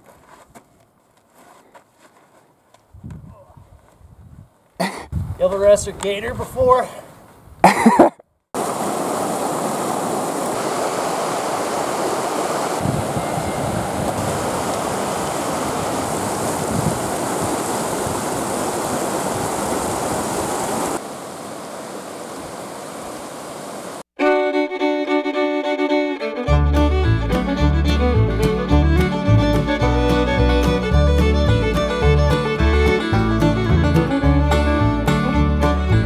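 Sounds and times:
creek water rushing: 8.6 - 24.0
instrumental music: 24.2 - 36.0.

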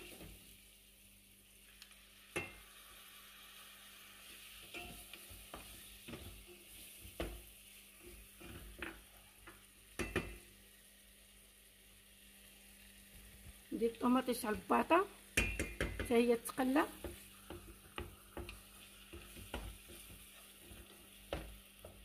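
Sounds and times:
food sizzling in a pot: 0.0 - 22.0
wooden spoon knocking on pot: 8.8 - 10.4, 15.4 - 16.2, 16.9 - 20.2.

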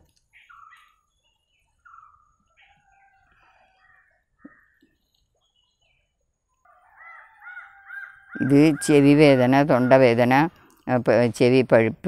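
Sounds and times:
faint birds chirping: 0.0 - 9.5.

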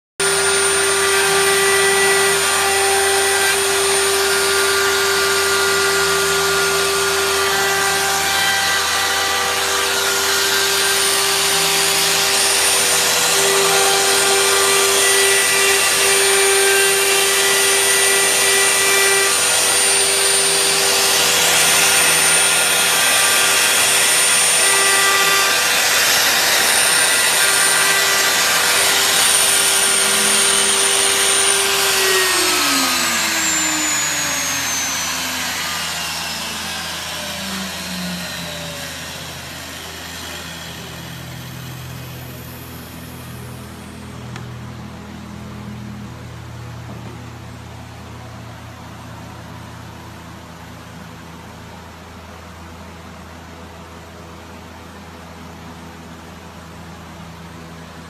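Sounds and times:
bit carving wood: 0.2 - 37.8
dust vacuum running: 0.2 - 47.2
router spindle whine: 0.2 - 58.0.

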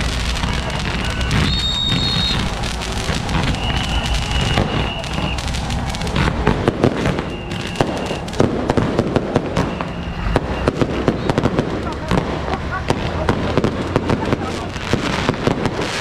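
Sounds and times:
high firework whistle: 0.0 - 12.2
fireworks crackling: 0.0 - 16.0
loud firework bangs: 0.0 - 16.0.

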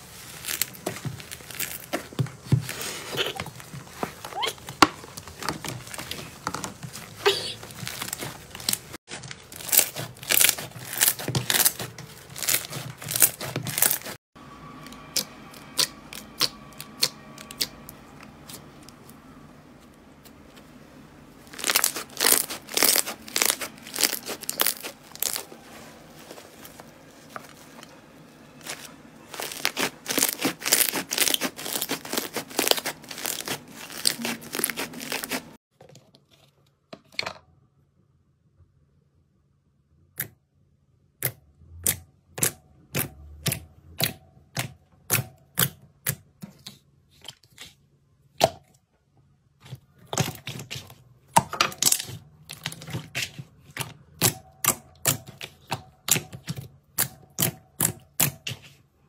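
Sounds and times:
slime popping and crackling: 0.3 - 2.5, 4.3 - 14.2, 21.4 - 25.5, 28.6 - 35.6.

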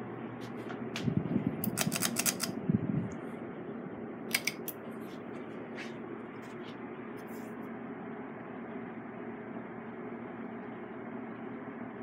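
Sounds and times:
ceiling fan whooshing and humming: 0.0 - 12.0
pull chain clicks and rattles: 1.6 - 2.5.

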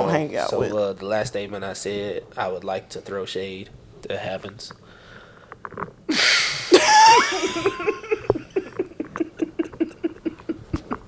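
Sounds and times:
people laughing hard: 6.7 - 11.0.

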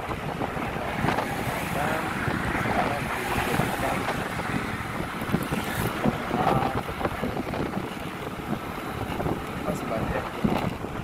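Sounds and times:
low uneven ride rumble: 0.0 - 11.0
wind buffeting microphone: 0.0 - 11.0.

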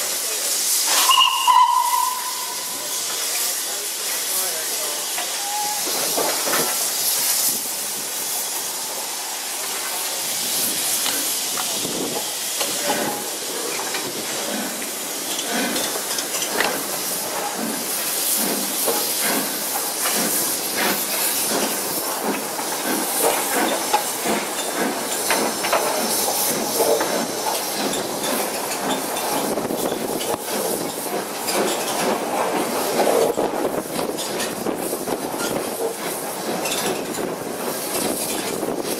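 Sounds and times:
hiss of steam and rushing air: 0.0 - 38.9
train wheels clattering over rail joints: 5.1 - 7.5, 10.9 - 38.9.

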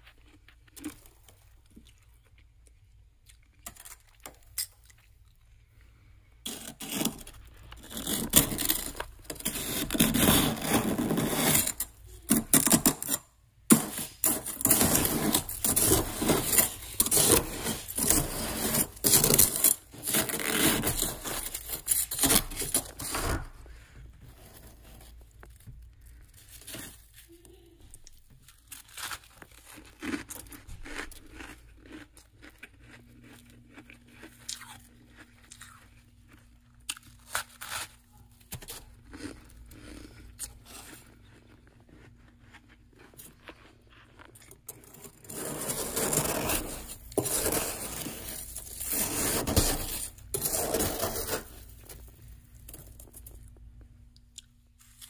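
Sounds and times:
faint low hum: 0.0 - 55.0
metal utensil scraping frost: 6.5 - 23.5, 44.7 - 52.0.

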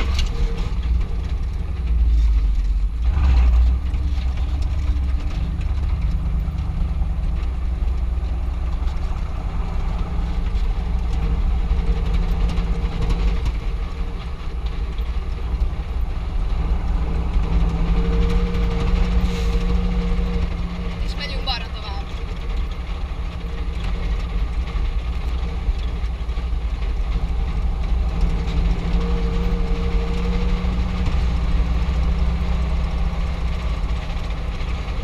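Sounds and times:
truck engine and road rumble: 0.0 - 35.0.

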